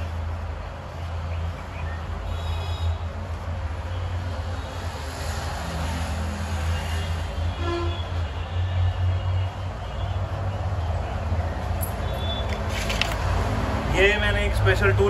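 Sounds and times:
car horn toot: 6.9 - 10.2, 12.0 - 12.6.

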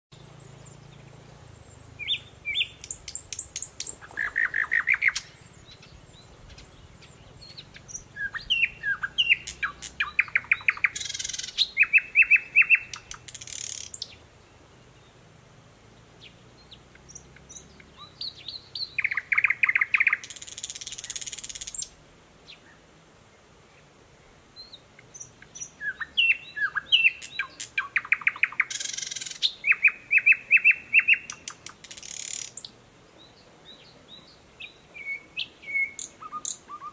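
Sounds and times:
nightingale singing: 0.1 - 15.2, 15.9 - 22.8, 24.2 - 36.9.

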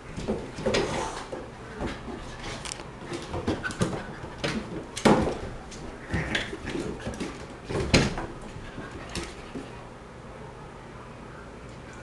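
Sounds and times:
animals scuffling on wooden floor: 0.0 - 9.9.

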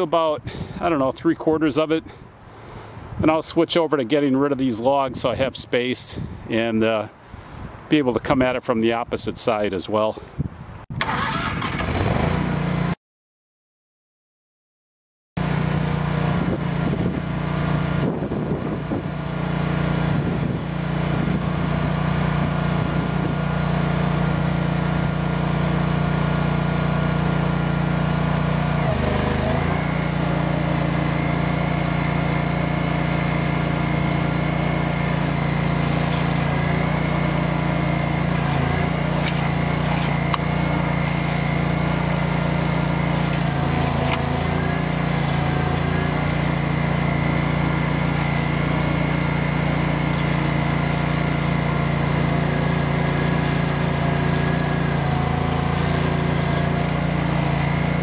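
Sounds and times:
cutter wheel grinding stump: 11.0 - 12.9, 15.4 - 58.0
stump grinder engine: 11.0 - 12.9, 15.4 - 58.0.

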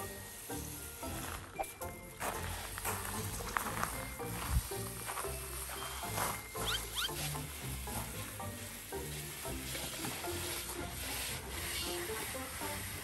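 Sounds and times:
hose nozzle spraying water: 0.0 - 1.3, 5.4 - 13.0
background music: 0.0 - 13.0.

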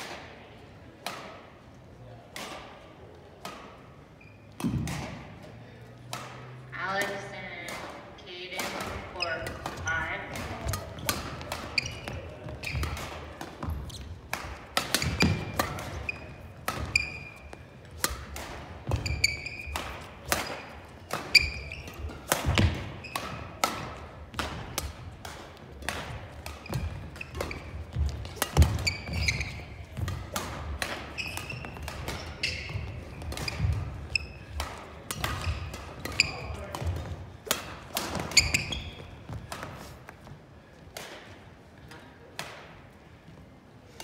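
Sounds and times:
racket hitting shuttlecock: 1.0 - 1.5, 2.3 - 3.9, 4.5 - 5.3, 6.0 - 40.2, 40.9 - 42.8
shoes squeaking on floor: 4.0 - 4.8, 8.8 - 23.6, 26.4 - 40.4.

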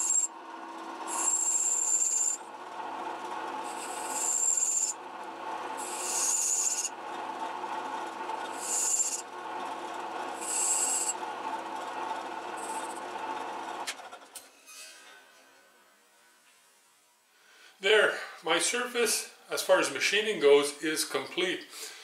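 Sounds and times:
cutting tool hissing: 0.0 - 0.3, 1.0 - 2.4, 3.5 - 5.0, 5.6 - 7.0, 8.5 - 9.3, 10.3 - 11.2, 12.6 - 13.0
lathe humming: 0.0 - 14.3.

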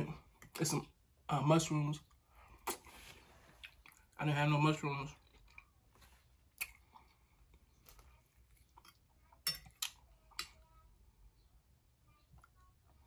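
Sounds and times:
close-up chewing: 5.2 - 10.1.

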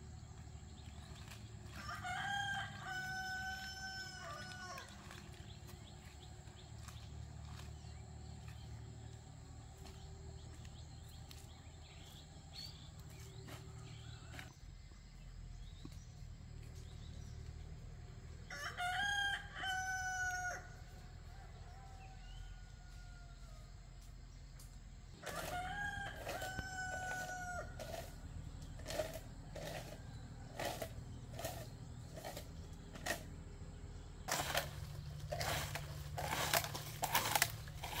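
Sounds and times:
rooster crowing: 1.7 - 5.0, 18.4 - 23.7, 25.2 - 28.0.

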